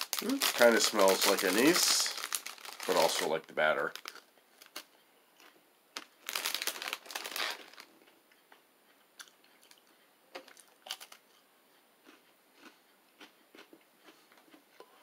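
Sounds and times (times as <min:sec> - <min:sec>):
crunching crisp cookie: 0:12.0 - 0:14.6.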